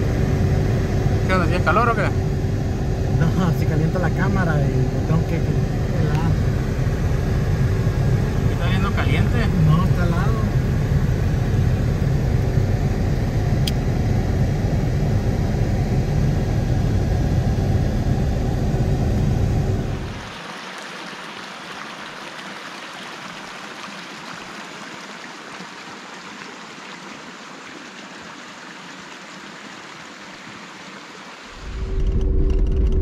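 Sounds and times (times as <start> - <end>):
car engine rumble inside cab: 0.0 - 20.2, 31.6 - 33.0
creek running over rocks: 20.0 - 31.6.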